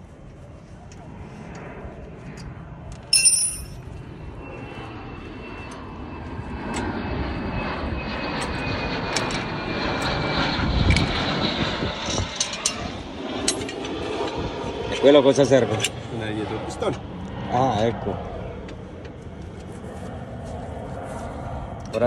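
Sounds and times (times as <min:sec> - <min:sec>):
sharp metallic clank: 0:03.1 - 0:03.8.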